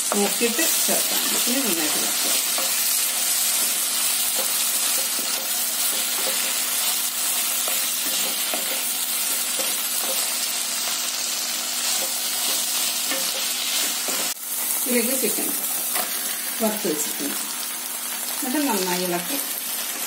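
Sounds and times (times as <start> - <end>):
vegetables sizzling in a pan: 0.0 - 20.0.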